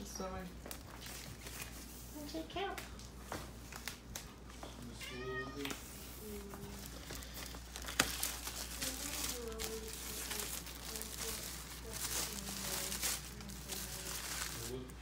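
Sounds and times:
cat meowing: 5.0 - 5.9.

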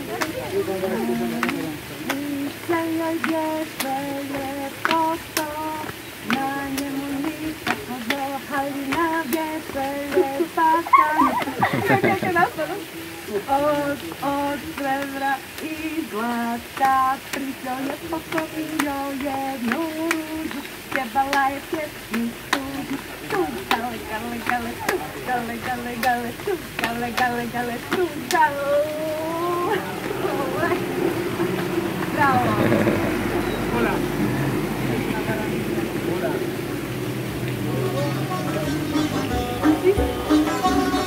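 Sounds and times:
hand claps: 0.0 - 12.1, 14.0 - 29.0
girl and woman singing: 0.9 - 12.5, 13.3 - 30.9.

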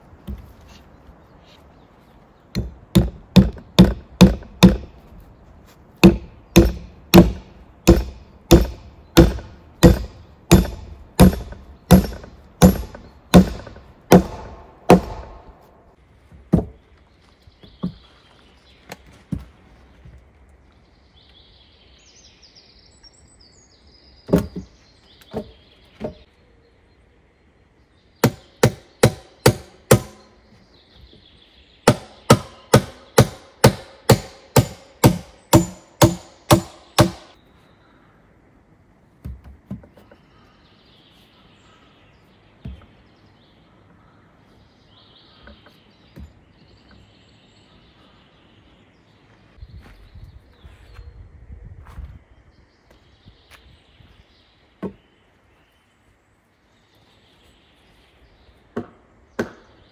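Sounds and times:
small birds chirping: 0.0 - 59.9
blows striking wood: 2.5 - 5.2, 5.8 - 16.8, 31.9 - 37.4.

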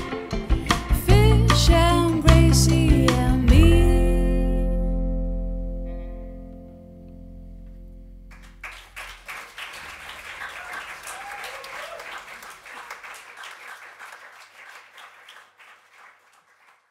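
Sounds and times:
low bass note ringing: 3.6 - 8.6
audience applauding: 8.3 - 16.9.

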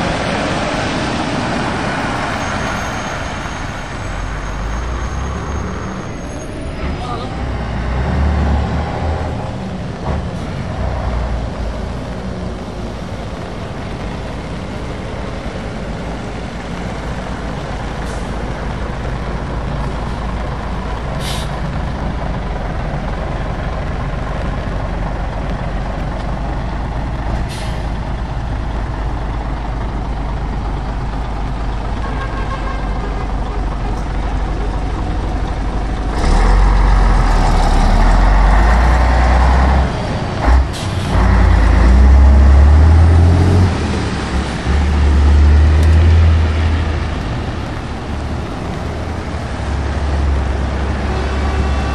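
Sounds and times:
diesel lorry engine running: 0.0 - 51.9
tyres on wet road: 0.0 - 51.9
air brake hisses: 21.2 - 21.6.

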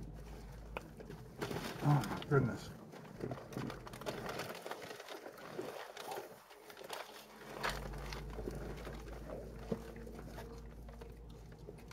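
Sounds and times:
clicks of people eating: 0.0 - 11.9
low steady hum: 0.0 - 11.9
paper wrappers rustling: 0.0 - 11.9.

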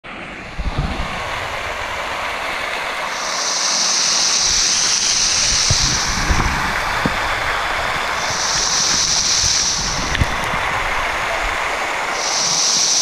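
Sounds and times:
waterfall rushing: 0.0 - 13.0
wind bumps on microphone: 0.2 - 3.1, 4.4 - 12.2
spray hissing: 0.5 - 13.0.

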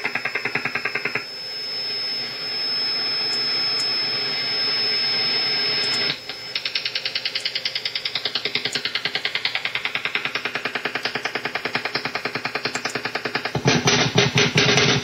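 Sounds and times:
pulsed radio signal: 0.0 - 15.0
steady radio hiss: 1.3 - 9.2.

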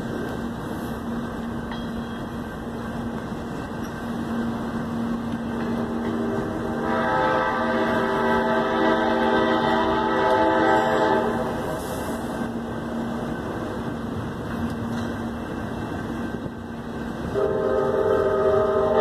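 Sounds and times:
freight train rolling past: 0.0 - 19.0
train horn blast: 5.6 - 11.8, 17.3 - 19.0.

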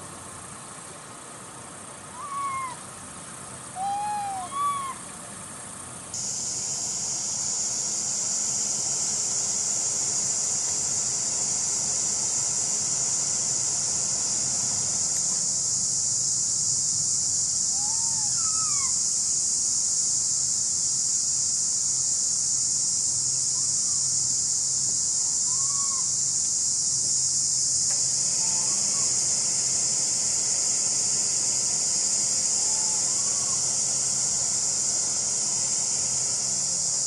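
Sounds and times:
macaque coo calls: 2.1 - 2.8, 3.8 - 5.0, 17.8 - 19.0, 25.4 - 26.1
high-pitched insect drone: 3.7 - 5.0, 6.1 - 37.0.

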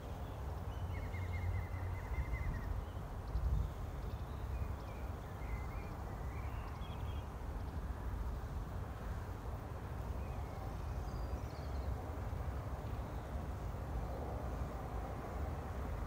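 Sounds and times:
faint bird chirps: 0.2 - 7.3.

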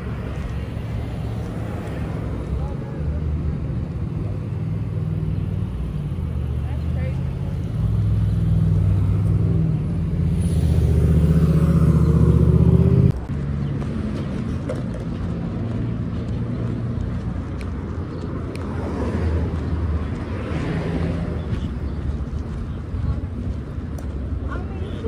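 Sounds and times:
passing traffic: 0.0 - 25.0
vehicle engine humming: 0.0 - 25.0.

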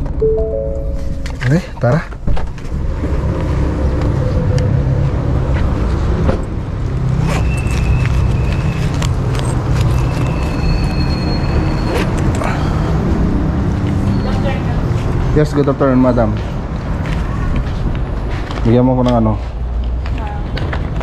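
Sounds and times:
vehicle low rumble: 0.0 - 21.0
thin high tone: 0.2 - 1.8.

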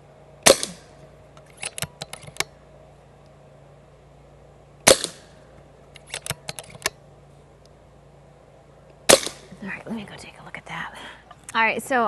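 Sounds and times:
air rifle shot: 0.4 - 0.9, 4.8 - 5.4, 9.1 - 9.5.

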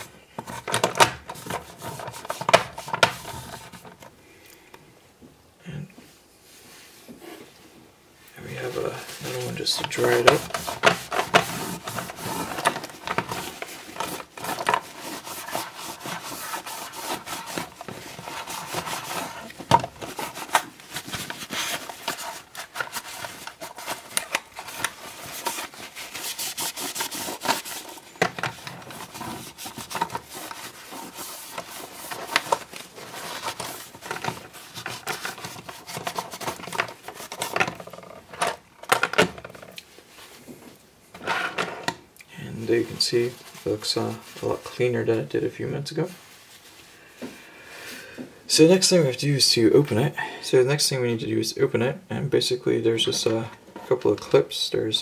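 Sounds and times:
paper towel scrubbing plastic: 0.0 - 4.0, 8.4 - 38.1, 42.6 - 46.9.

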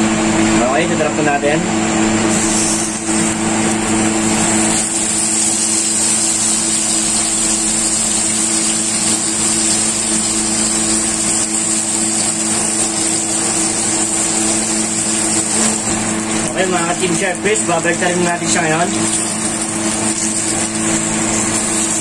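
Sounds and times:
steak sizzling in a frying pan: 2.3 - 22.0.

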